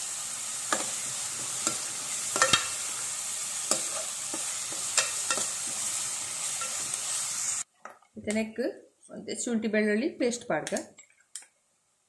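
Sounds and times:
onions sizzling in hot oil: 0.0 - 7.7
spatula scraping a pan: 3.6 - 7.6.

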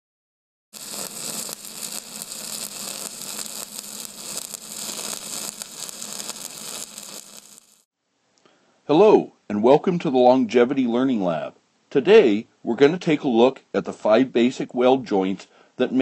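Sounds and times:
crackling hiss: 0.8 - 8.5.

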